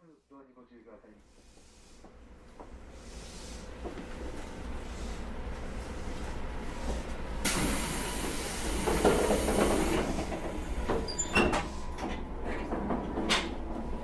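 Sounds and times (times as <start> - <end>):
electric train air hiss: 6.8 - 12.0.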